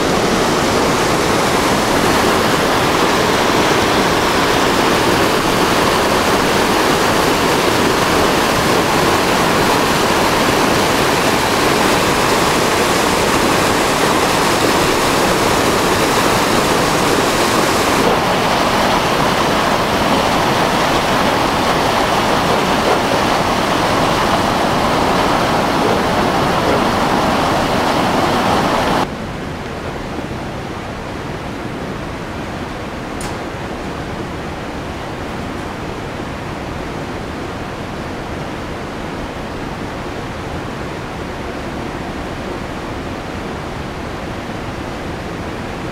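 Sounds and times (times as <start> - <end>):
water rushing over rocks: 0.0 - 29.1.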